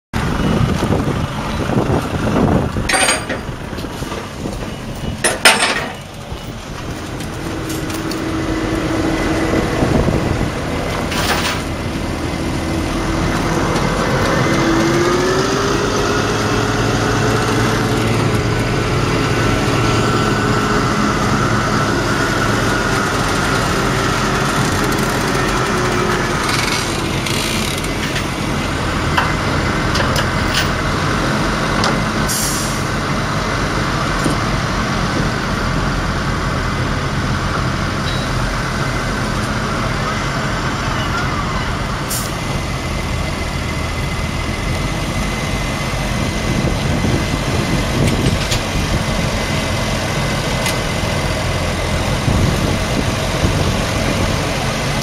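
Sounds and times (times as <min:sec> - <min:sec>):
tractor diesel engine under load: 0:00.1 - 0:55.0
sharp metal clanks: 0:02.9 - 0:03.6, 0:05.2 - 0:06.1.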